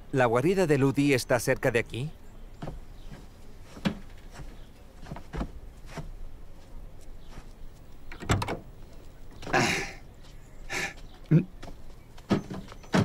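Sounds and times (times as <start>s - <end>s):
light clicks and knocks: 2.6s - 6.1s, 7.3s - 9.6s.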